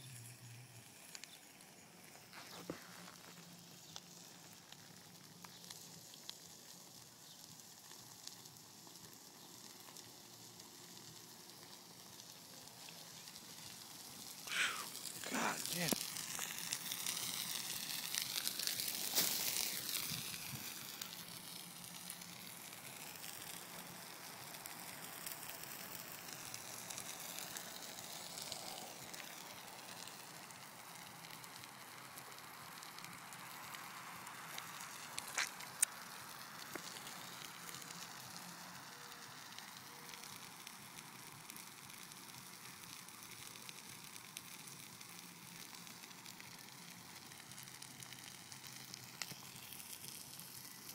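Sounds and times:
fire crackling: 0.0s - 50.9s
sharp pops: 34.5s - 37.1s.

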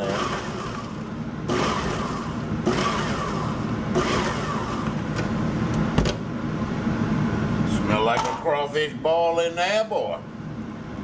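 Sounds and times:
blade chopping food: 0.0s - 5.0s
food processor motor whirring: 0.0s - 5.1s.

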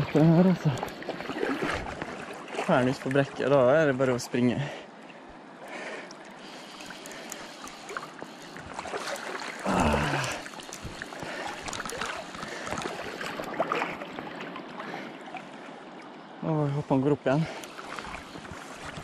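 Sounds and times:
river water rushing: 0.0s - 19.0s
person grunting: 9.6s - 10.4s.

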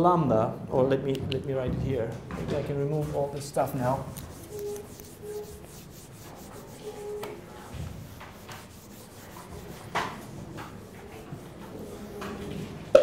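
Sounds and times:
whiteboard eraser rubbing: 2.7s - 13.0s.

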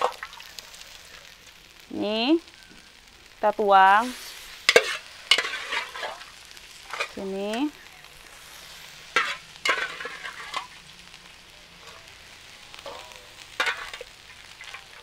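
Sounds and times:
meat sizzling in a pan: 0.0s - 15.0s
spatula scraping and knocking pan: 4.6s - 6.2s, 9.1s - 10.8s, 12.8s - 15.0s.

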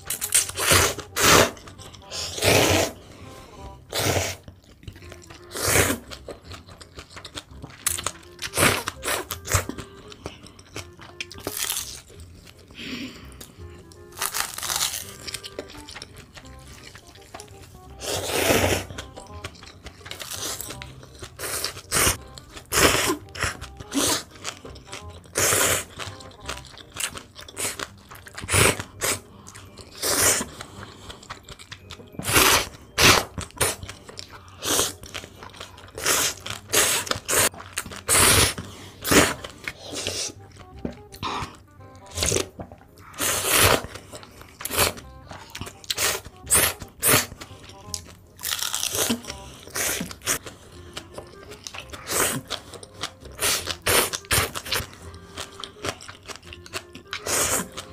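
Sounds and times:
chewing: 0.0s - 57.9s
noodle slurping: 0.4s - 3.0s, 3.9s - 4.5s, 5.1s - 6.4s, 17.9s - 19.0s, 21.3s - 24.5s, 25.3s - 26.0s, 27.4s - 31.3s, 32.2s - 40.5s, 41.2s - 47.4s, 48.9s - 50.4s, 51.4s - 55.6s, 57.1s - 57.9s.

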